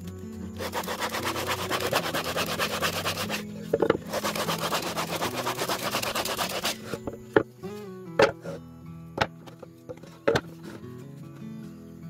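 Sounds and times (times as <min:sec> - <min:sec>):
sanding sponge scraping wood: 0:00.5 - 0:07.1.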